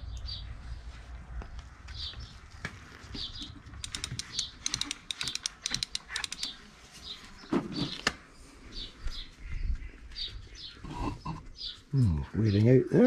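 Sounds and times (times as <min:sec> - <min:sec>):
birds chirping: 0:00.0 - 0:13.0
bicycle chain metallic clicks: 0:03.8 - 0:06.5.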